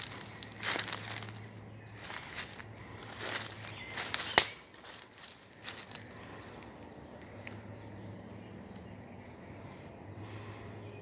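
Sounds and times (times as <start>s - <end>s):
twig cracking: 0.0s - 1.4s, 2.0s - 7.7s
footsteps crunching through dry leaves: 0.0s - 6.7s
small bird chirping: 0.0s - 11.0s.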